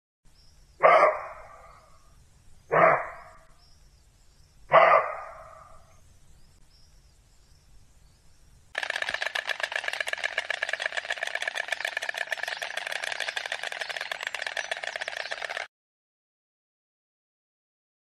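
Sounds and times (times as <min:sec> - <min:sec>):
deer barking: 0:00.8 - 0:01.9, 0:02.7 - 0:03.4, 0:04.7 - 0:05.8.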